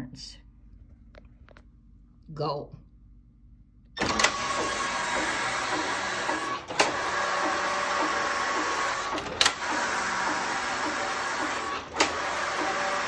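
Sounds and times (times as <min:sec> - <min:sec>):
knitting machine running: 0:04.0 - 0:13.0.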